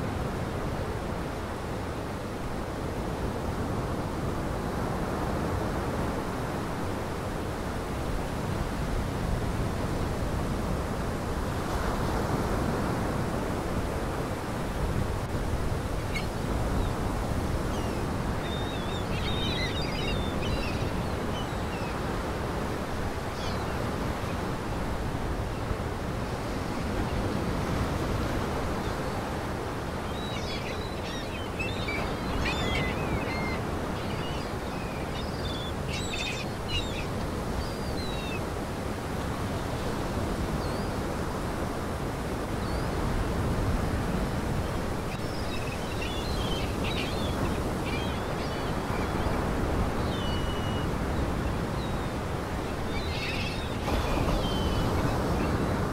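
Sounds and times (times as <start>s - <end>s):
small birds chirping: 17.7s - 22.0s, 30.0s - 38.4s, 45.1s - 55.6s.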